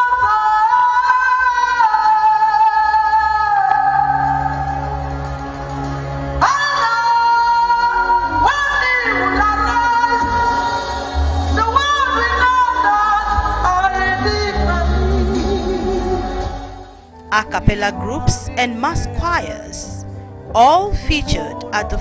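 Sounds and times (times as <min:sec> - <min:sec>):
woman singing gospel: 0:00.0 - 0:05.1, 0:06.4 - 0:16.6, 0:17.3 - 0:22.0.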